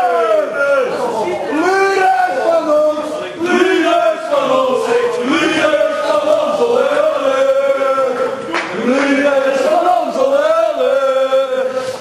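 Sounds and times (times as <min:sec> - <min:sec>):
men chanting together: 0:02.0 - 0:12.0.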